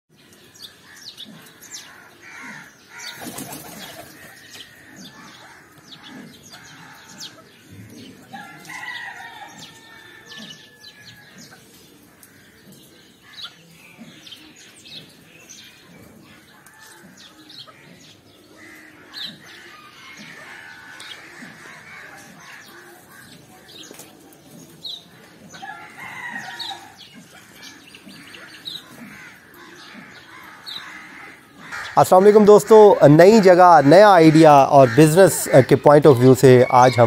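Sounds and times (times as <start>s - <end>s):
birds chirping and calling: 0.1s - 37.0s
wings flapping: 3.1s - 4.4s.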